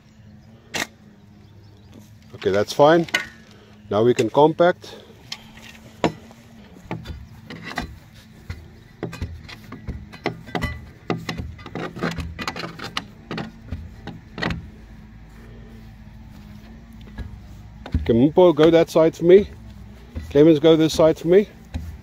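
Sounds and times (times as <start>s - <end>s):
steady low hum: 0.0s - 22.0s
tamping bar thudding into soil: 5.6s - 14.8s.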